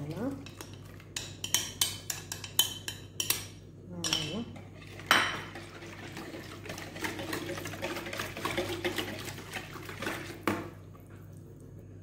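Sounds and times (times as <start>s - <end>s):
whisk beating batter in bowl: 4.8s - 10.6s.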